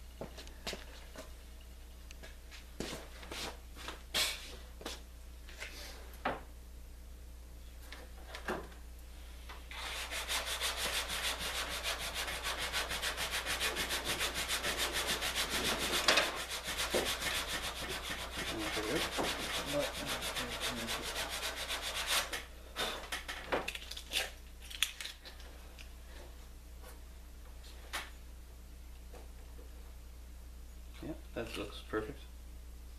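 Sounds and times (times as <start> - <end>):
hand-sanding wood: 9.7 - 22.4.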